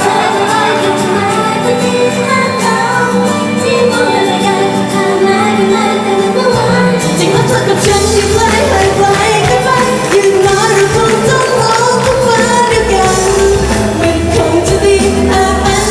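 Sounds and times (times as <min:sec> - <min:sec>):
women singing pop song: 0:00.0 - 0:15.9
backing music with bass and drums: 0:06.5 - 0:15.9.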